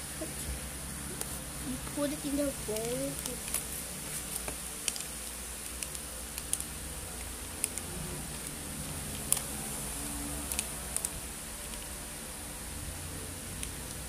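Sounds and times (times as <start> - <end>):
plastic sachet crinkling: 2.2 - 6.7.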